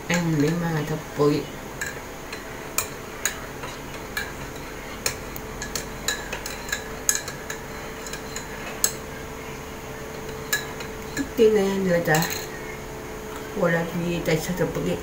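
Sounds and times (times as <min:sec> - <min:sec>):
faint steady hum: 0:00.0 - 0:15.0
utensils clinking on a plate: 0:01.8 - 0:09.2, 0:10.2 - 0:11.4, 0:12.0 - 0:12.8.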